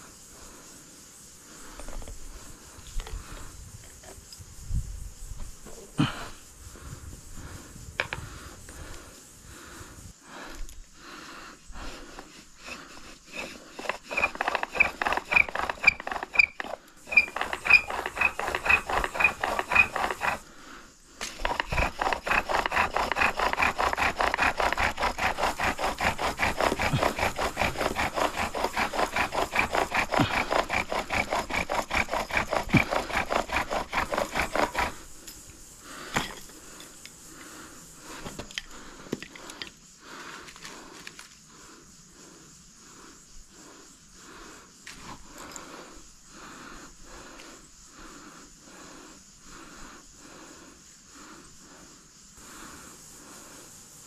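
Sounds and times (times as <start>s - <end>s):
bow drill grinding and squeaking: 11.9s - 20.5s, 21.2s - 35.1s.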